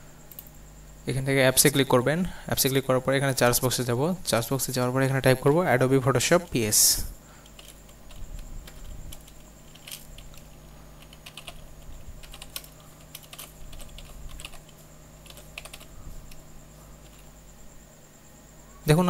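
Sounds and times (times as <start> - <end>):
faint high whine: 0.0 - 19.0.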